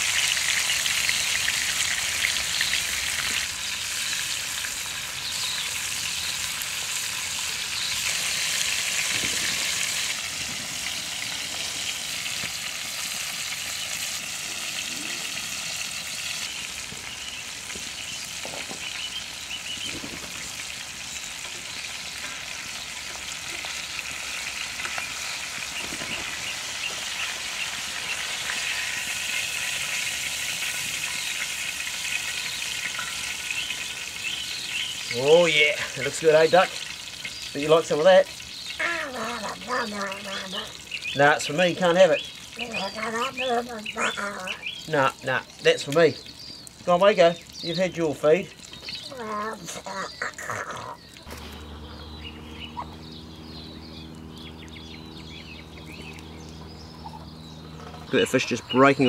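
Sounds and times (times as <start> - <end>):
fish sizzling in oil: 0.0 - 50.3.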